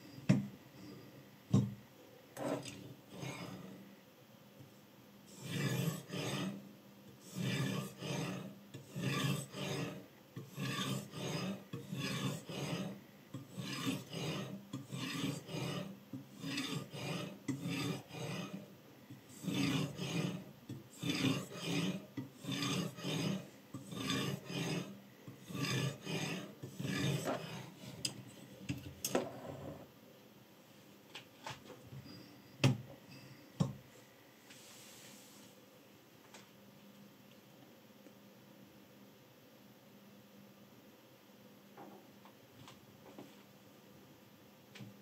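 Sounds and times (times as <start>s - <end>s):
sharpening stone scraping knife blade: 5.3s - 6.6s, 7.2s - 18.6s, 19.4s - 20.4s, 21.0s - 24.9s, 25.5s - 27.6s.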